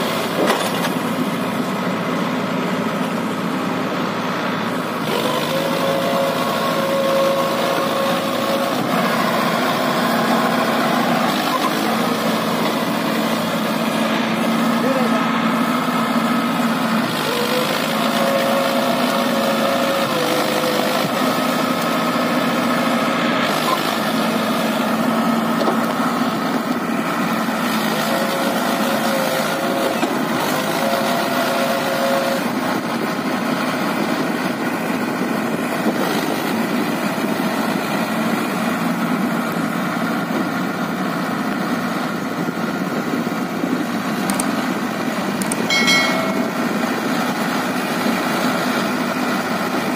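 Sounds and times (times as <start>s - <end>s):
tractor diesel engine running: 0.0s - 49.9s
higher steady tone: 45.7s - 46.9s.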